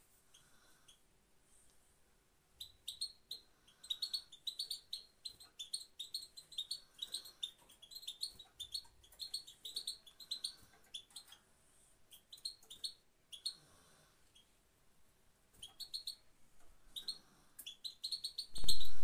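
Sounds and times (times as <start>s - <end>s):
goldfinch chirping: 2.6s - 11.4s, 12.1s - 13.6s, 15.6s - 16.2s, 16.9s - 19.0s.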